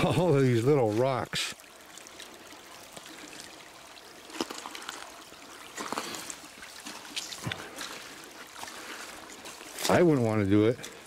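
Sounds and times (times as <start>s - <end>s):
water trickling: 0.0s - 11.0s.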